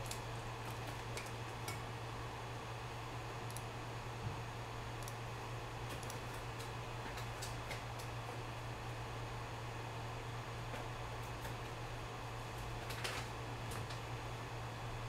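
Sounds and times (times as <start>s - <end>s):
low hum and hiss: 0.0s - 15.0s
faint computer mouse clicks: 5.0s - 5.2s, 5.9s - 6.2s.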